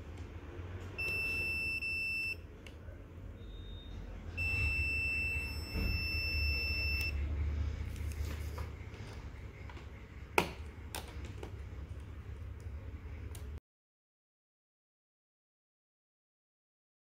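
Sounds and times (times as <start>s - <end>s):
low hum: 0.0s - 13.6s
high-pitched multimeter beeps: 1.0s - 2.4s, 3.4s - 7.2s.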